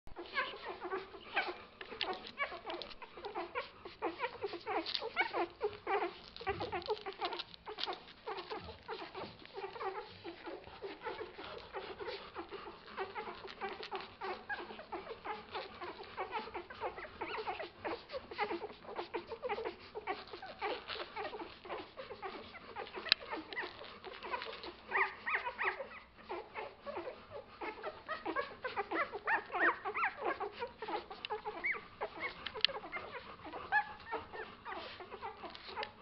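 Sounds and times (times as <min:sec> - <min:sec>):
puppies squeaking and whimpering: 0:00.1 - 0:36.0
puppies suckling clicks: 0:00.1 - 0:36.0.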